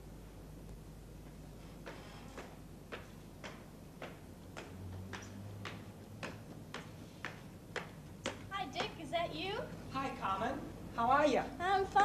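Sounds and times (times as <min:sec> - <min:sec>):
low room tone hum: 0:00.0 - 0:12.0
footstep on a staircase: 0:01.2 - 0:09.0.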